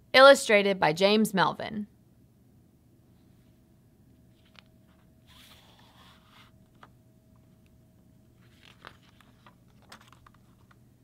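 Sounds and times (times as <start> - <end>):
book pages turning: 4.4 - 7.7, 8.3 - 10.8
paper rustling and finger taps: 8.4 - 10.8.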